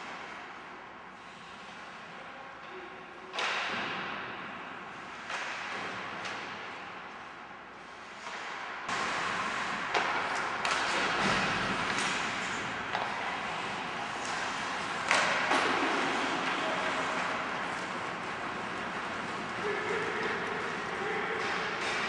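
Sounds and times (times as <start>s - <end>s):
hockey sticks and puck clacking: 3.3s - 4.3s, 5.1s - 7.2s, 8.0s - 22.0s.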